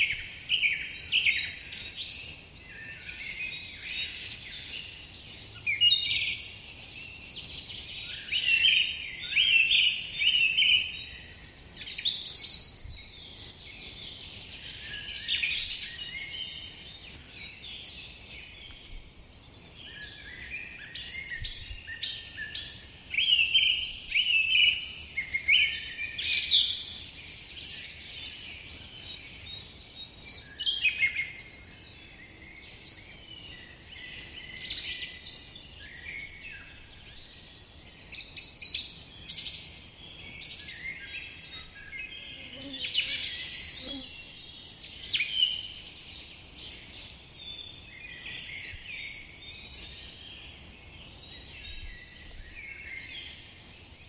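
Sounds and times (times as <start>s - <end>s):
birds singing and chirping: 0.0s - 54.0s
faint outdoor hiss: 0.0s - 54.0s.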